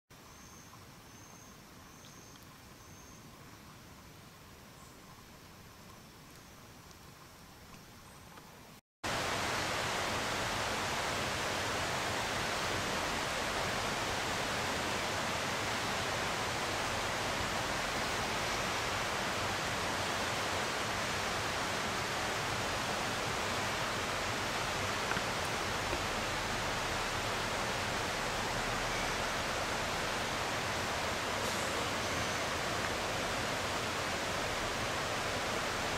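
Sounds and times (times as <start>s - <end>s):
steady rushing hiss: 8.5s - 35.9s.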